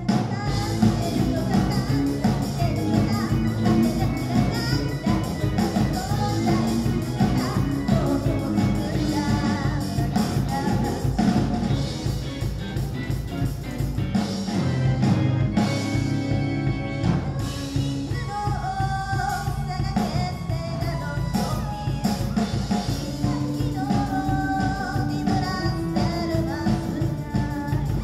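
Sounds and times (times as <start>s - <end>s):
lead vocal singing: 0.0s - 12.2s
live rock band: 0.0s - 28.0s.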